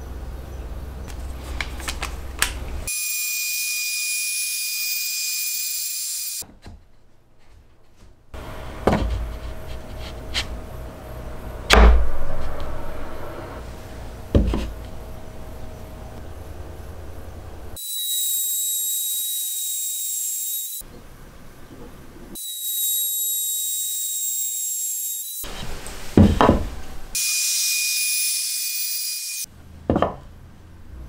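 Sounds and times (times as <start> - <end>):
router cutting wood: 2.9 - 6.4, 17.8 - 20.8, 27.1 - 29.4.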